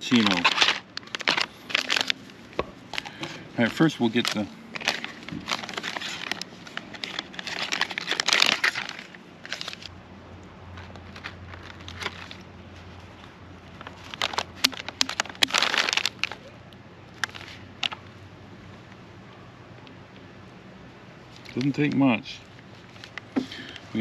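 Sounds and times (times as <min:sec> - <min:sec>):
plastic bag crinkling: 0:00.0 - 0:09.9, 0:10.7 - 0:18.1.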